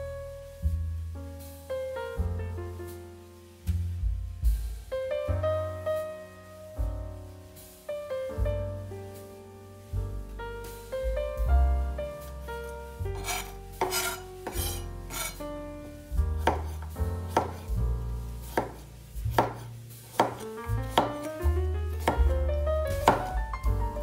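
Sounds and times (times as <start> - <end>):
gentle piano music: 0.0 - 24.0
knife chopping on cutting board: 13.2 - 15.4, 16.4 - 17.7, 18.5 - 21.3, 21.9 - 23.4.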